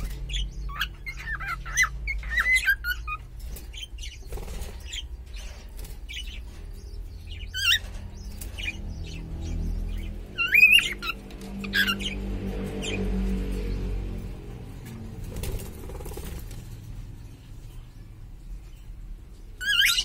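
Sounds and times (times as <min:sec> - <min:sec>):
cockatiels chirping: 0:00.0 - 0:13.0, 0:19.3 - 0:20.0.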